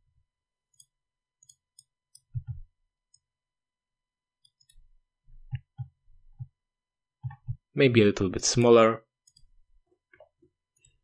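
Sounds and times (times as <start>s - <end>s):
computer mouse clicks: 0.7s - 3.3s, 4.4s - 4.9s.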